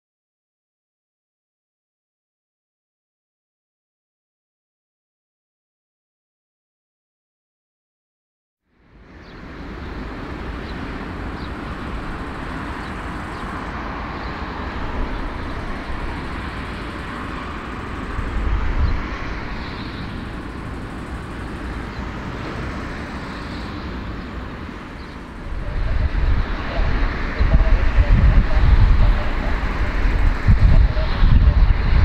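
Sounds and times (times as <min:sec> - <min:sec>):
jet engines idling: 0:08.7 - 0:32.0.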